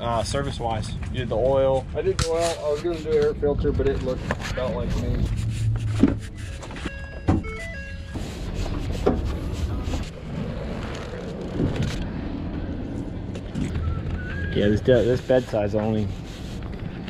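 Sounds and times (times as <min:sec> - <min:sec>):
low wind rumble: 0:00.0 - 0:06.9, 0:08.0 - 0:17.0
electronic tones: 0:06.1 - 0:08.6.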